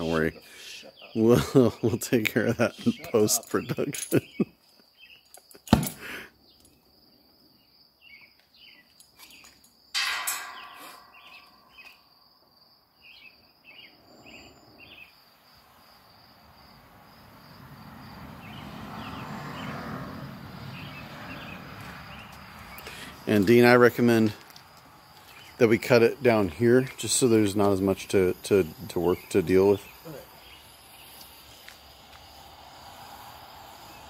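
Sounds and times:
crickets chirping: 0.0s - 34.0s
cutting torch hissing: 25.3s - 34.0s
cutting torch popping: 27.0s - 34.0s.

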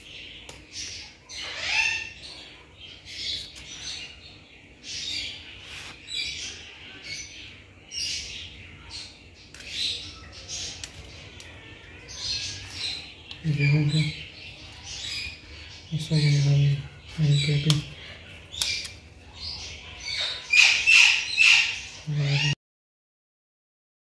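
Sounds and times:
knife and spatula scraping: 5.5s - 6.4s.

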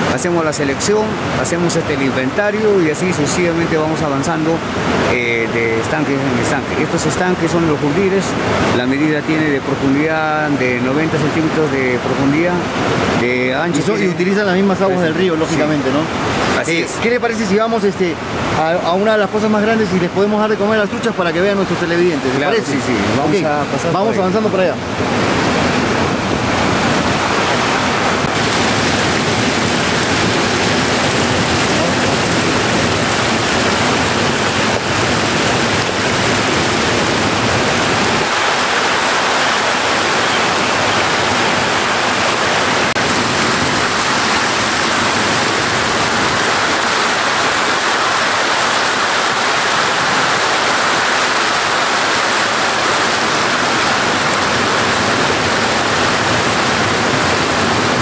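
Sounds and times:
water pouring into channels: 28.2s - 58.0s.

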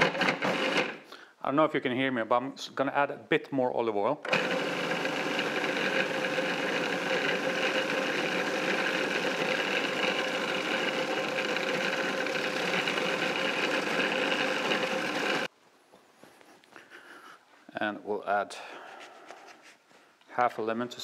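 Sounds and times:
food processor running: 0.0s - 1.0s, 4.3s - 15.5s.

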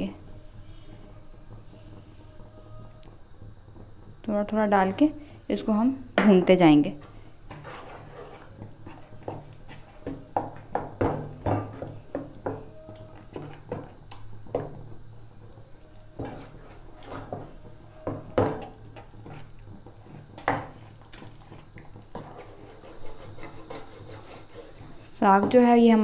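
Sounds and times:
spatula scraping a pan: 7.0s - 10.9s, 16.2s - 25.1s.

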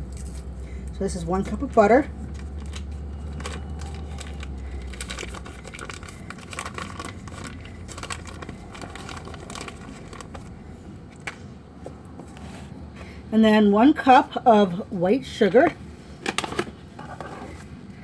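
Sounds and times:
paper wrapper crinkling: 2.2s - 11.4s.

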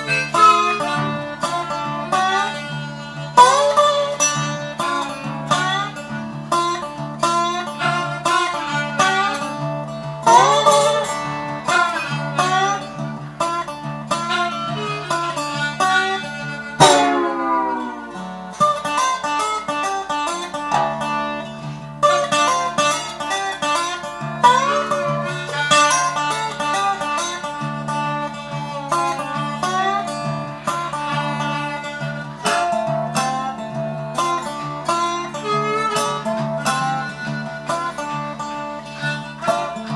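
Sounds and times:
blues harmonica: 0.0s - 39.9s
slide resonator guitar: 0.0s - 39.9s.

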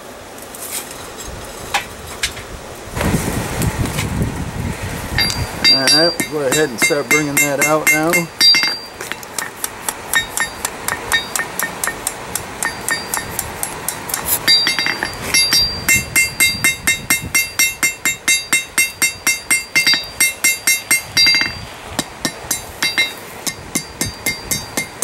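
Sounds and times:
hammer striking steel on anvil: 5.2s - 25.0s.

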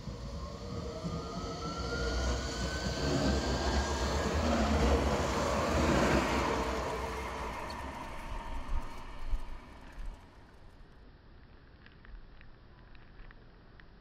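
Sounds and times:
tram motor whine: 0.0s - 10.6s
tram wheel and rail rumble: 0.0s - 10.9s.

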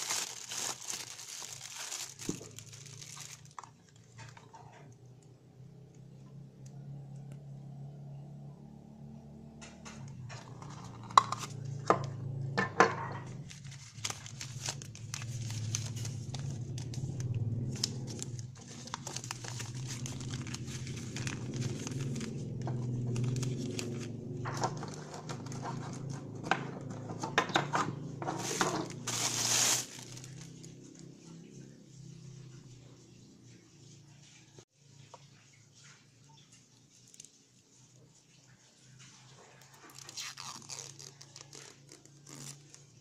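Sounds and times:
plastic bag crinkling: 0.0s - 4.5s, 13.2s - 27.4s, 28.2s - 31.0s, 39.9s - 42.9s.

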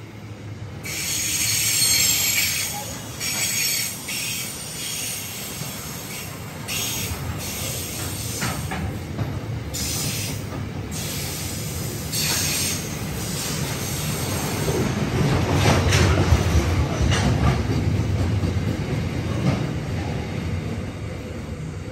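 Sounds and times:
train wheels rumbling on rail: 0.0s - 21.9s
high-pitched wheel squeal: 0.9s - 5.2s.

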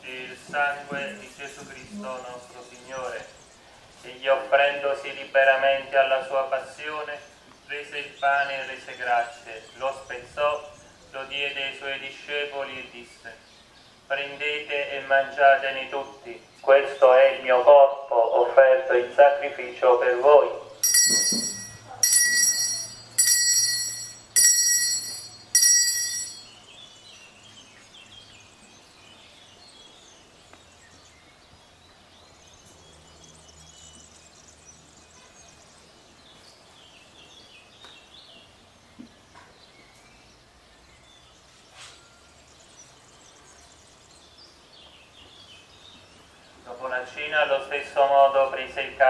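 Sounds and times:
faint outdoor ambience: 0.0s - 49.0s
small bell ringing: 20.8s - 26.6s.

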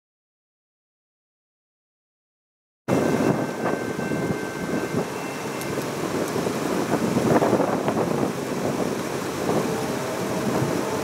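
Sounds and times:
faint steady tones: 2.9s - 7.0s
wind buffeting microphone: 2.9s - 11.0s.

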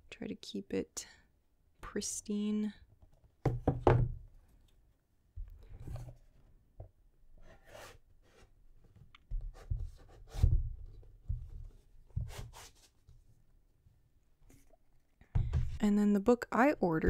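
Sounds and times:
heavy thumps of book: 15.4s - 15.8s.

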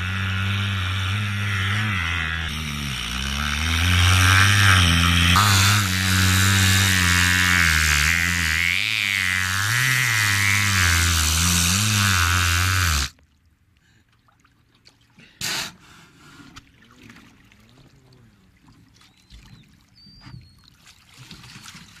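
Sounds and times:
orca buzzing drone: 0.0s - 13.1s
faint water sounds: 12.0s - 22.0s.

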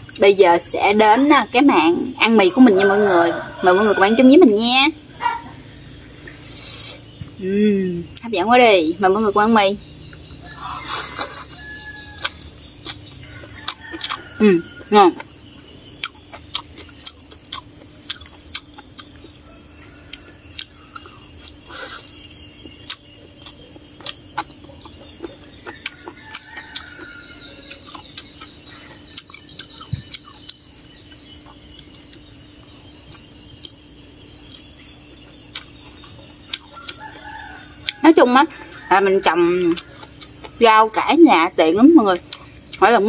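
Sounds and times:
chickens clucking: 0.8s - 7.4s, 8.6s - 32.3s, 33.0s - 43.0s.

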